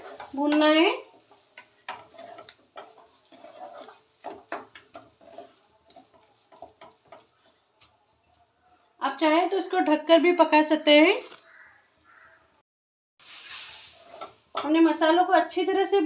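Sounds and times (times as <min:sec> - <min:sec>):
spatula scraping thick paste: 0:00.0 - 0:00.5, 0:01.1 - 0:07.6, 0:13.5 - 0:14.4
spatula knocking against pan: 0:04.2 - 0:07.3.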